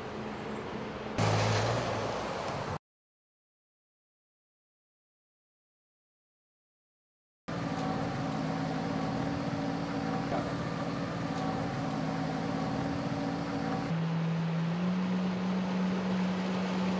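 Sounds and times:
watercraft engine running: 7.5s - 16.9s.

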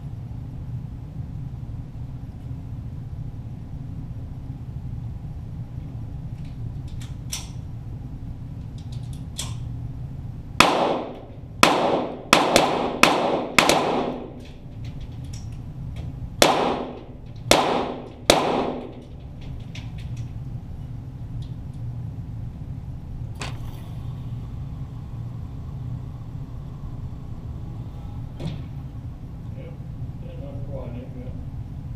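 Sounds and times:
steady low hum: 0.0s - 31.9s
pistol shots echoing: 10.6s - 14.5s, 16.4s - 19.0s.

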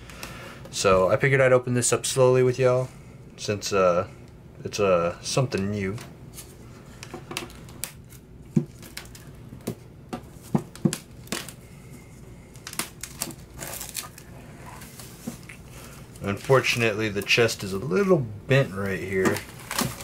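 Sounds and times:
plastic crinkling: 7.3s - 9.7s, 10.3s - 17.8s, 18.6s - 20.0s
knife slitting plastic wrap: 12.6s - 14.2s, 18.8s - 20.0s.

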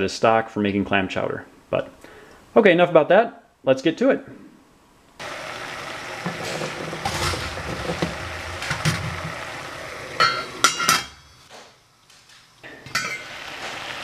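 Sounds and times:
boiling water hiss: 5.2s - 11.4s, 12.6s - 14.0s.

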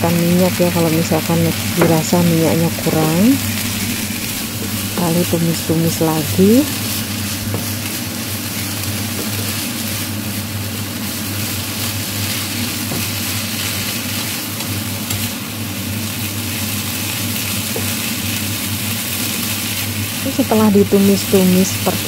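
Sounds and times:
steady low hum: 0.0s - 8.7s, 20.0s - 22.0s
food sizzling in oil: 0.0s - 22.0s.

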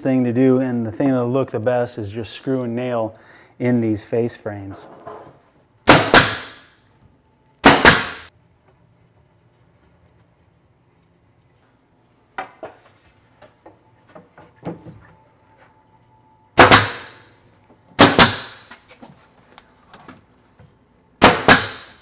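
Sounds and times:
nail gun firing: 5.9s - 6.7s, 7.6s - 8.3s, 16.6s - 17.3s, 18.0s - 18.7s, 21.2s - 22.0s.

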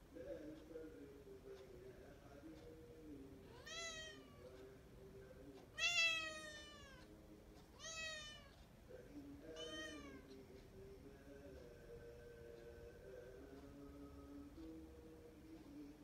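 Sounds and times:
cat meowing: 3.5s - 4.4s, 5.8s - 7.1s, 7.8s - 8.6s, 9.6s - 10.2s.

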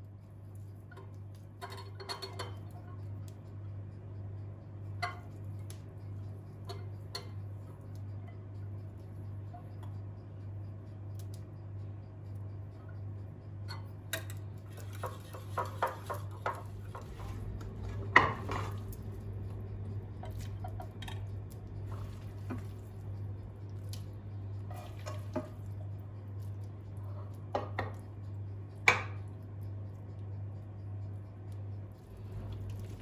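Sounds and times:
steady low hum: 0.0s - 33.0s
spatula scraping and tapping: 0.5s - 3.4s, 4.8s - 10.2s, 12.7s - 29.4s
whisk rattling in bowl: 14.1s - 19.5s.

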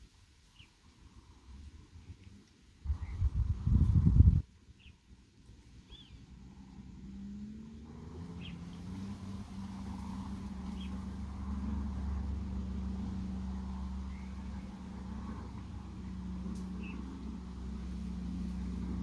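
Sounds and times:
motor engine running: 5.9s - 19.0s.

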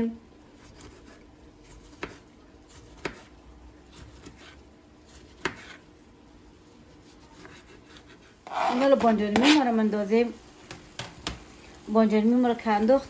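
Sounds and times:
knife slicing tomato: 0.5s - 6.0s, 6.7s - 9.8s.

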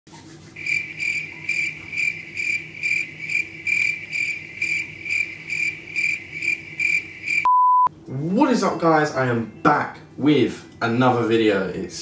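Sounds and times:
cricket chirping: 0.6s - 7.5s.

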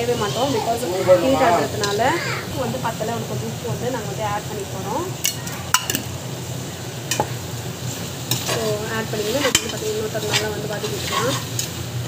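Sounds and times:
vegetables sizzling in hot oil: 0.0s - 12.0s
spoon clinking on metal pot: 9.4s - 11.7s.

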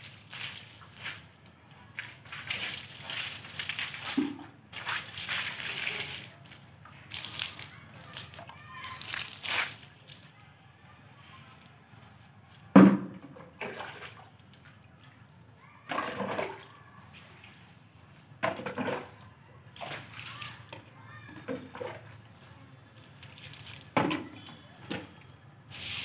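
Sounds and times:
water splashing onto ground: 0.0s - 10.4s, 12.8s - 15.1s, 19.8s - 22.0s, 23.1s - 26.0s.

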